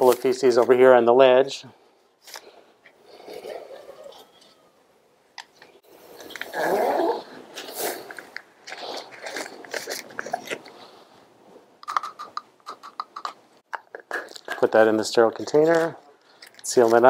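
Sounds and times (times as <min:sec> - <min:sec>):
paper wrapper rustling: 0:07.6 - 0:10.7.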